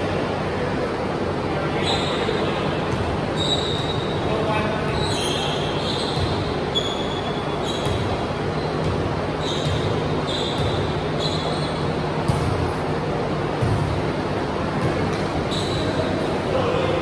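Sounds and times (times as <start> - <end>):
hum of large hall: 0.0 - 17.0
shoes squeaking on gym floor: 1.8 - 2.4, 3.3 - 12.8, 14.9 - 16.2
volleyball being hit: 12.2 - 12.7.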